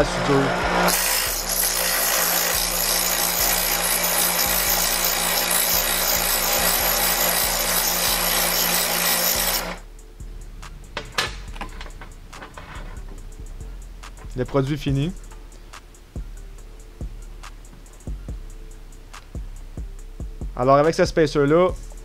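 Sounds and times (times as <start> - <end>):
bench grinder grinding steel: 0.0 - 9.8, 11.0 - 13.2
grinder motor hum: 0.0 - 9.8.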